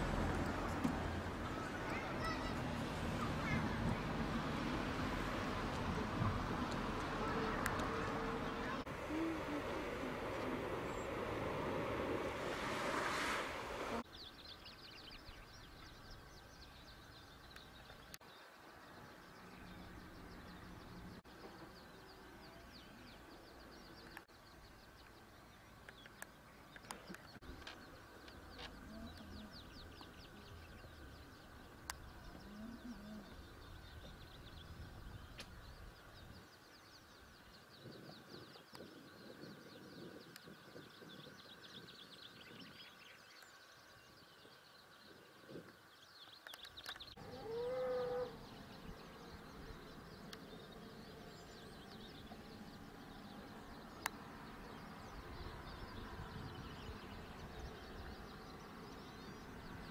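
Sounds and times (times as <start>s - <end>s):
small birds chirping: 1.4s - 4.3s, 5.7s - 59.9s
farm animal call: 47.2s - 48.5s.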